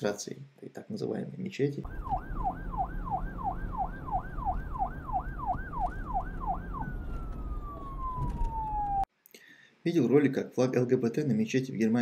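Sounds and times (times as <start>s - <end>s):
electronic siren-like swooping tone: 1.8s - 9.1s
low rumbling noise: 1.9s - 9.1s.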